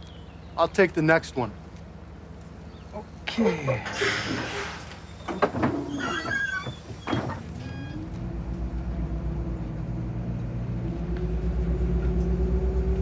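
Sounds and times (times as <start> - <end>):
bus engine pulling away: 3.9 - 13.0.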